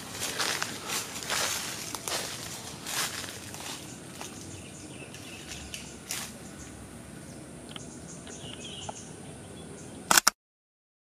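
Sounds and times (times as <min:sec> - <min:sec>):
footsteps in undergrowth: 0:00.0 - 0:06.8
high insect drone: 0:00.0 - 0:10.1.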